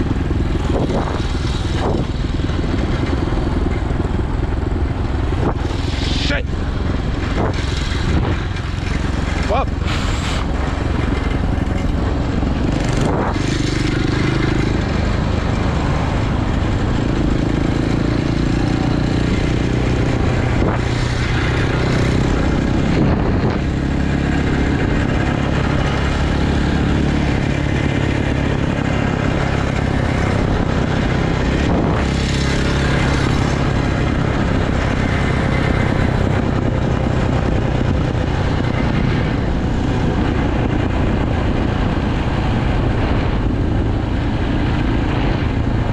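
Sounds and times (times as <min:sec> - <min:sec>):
dirt bike engine revving: 0:05.3 - 0:16.2.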